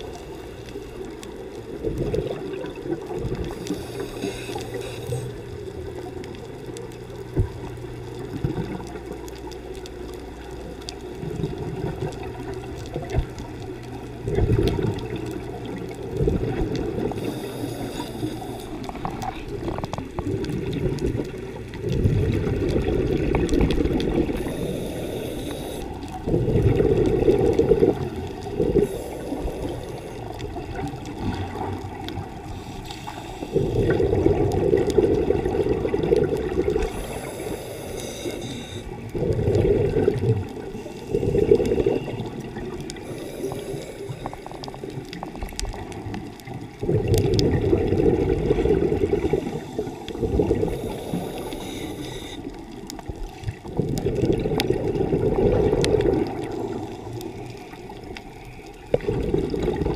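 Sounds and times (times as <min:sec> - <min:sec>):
exhaled air bubbling underwater: 0:00.0 - 0:59.9
regulator air hiss: 0:03.6 - 0:05.5, 0:17.2 - 0:19.0, 0:24.4 - 0:26.1, 0:32.5 - 0:33.7, 0:36.9 - 0:39.0, 0:43.0 - 0:44.4, 0:50.7 - 0:52.6.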